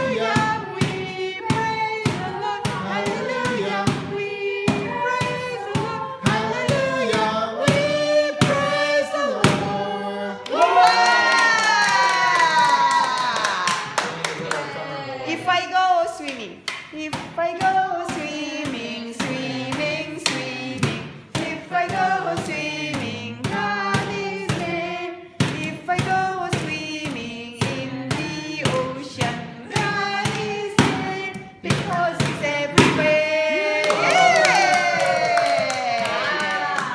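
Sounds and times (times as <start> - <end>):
steady beat of sharp strokes: 0.0 - 10.2, 16.6 - 33.8
voices singing together: 0.0 - 36.9.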